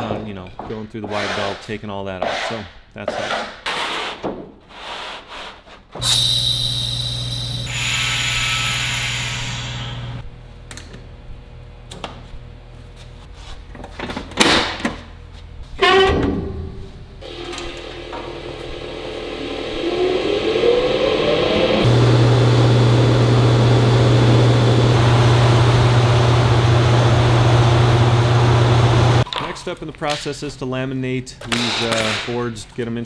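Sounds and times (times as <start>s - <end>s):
machine whine: 6.0s - 10.3s, 17.2s - 29.2s.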